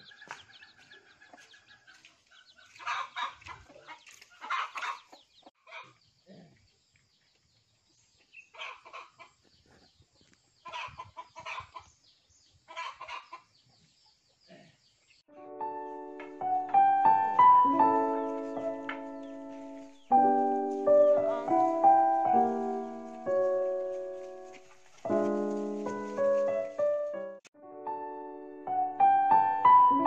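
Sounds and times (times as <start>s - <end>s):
chickens clucking: 0.0s - 6.6s, 8.2s - 14.8s, 17.7s - 21.8s, 22.4s - 26.2s
piano music: 15.3s - 30.0s.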